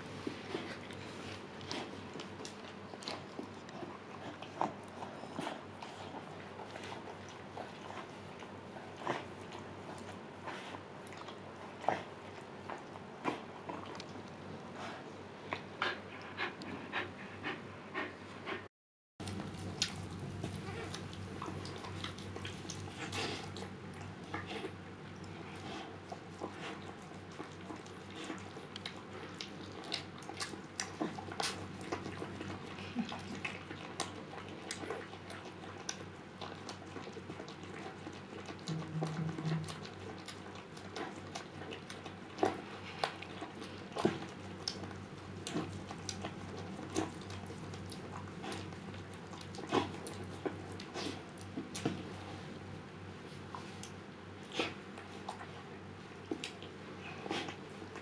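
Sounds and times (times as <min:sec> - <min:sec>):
dog licking puppy: 0:19.3 - 0:52.5.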